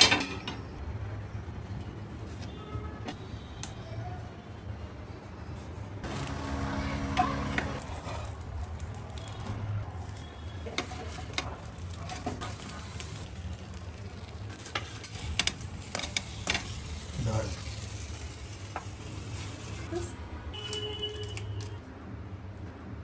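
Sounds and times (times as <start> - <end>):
fish parcels sizzling on griddle: 6.0 - 20.0.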